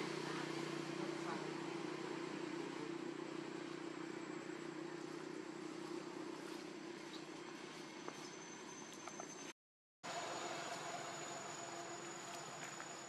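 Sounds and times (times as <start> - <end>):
engine hum: 0.0 - 9.5.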